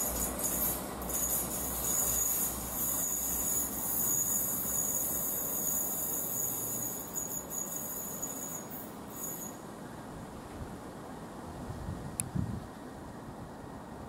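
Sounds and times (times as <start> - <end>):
train wheels squealing: 0.0 - 9.8
low train rumble: 0.0 - 14.0.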